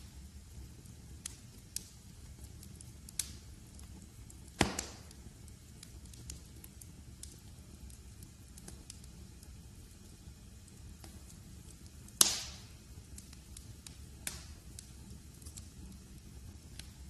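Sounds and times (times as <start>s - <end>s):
wood fire crackling: 0.0s - 17.0s.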